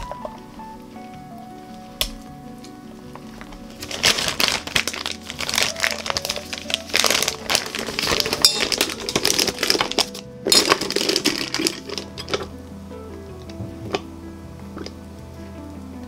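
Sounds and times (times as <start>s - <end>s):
plastic bag crinkling: 0.0s - 12.7s
soft background music: 0.0s - 16.0s.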